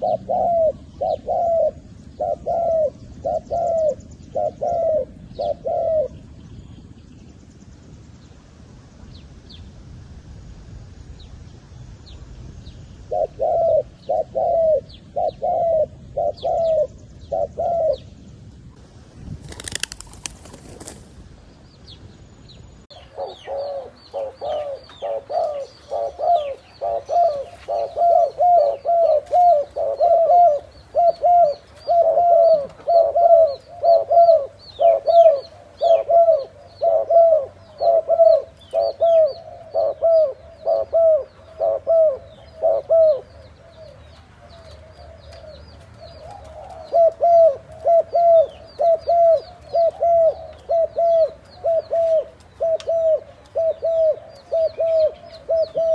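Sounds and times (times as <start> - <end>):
doves cooing: 0.0 - 6.2, 13.1 - 18.1, 23.0 - 55.9.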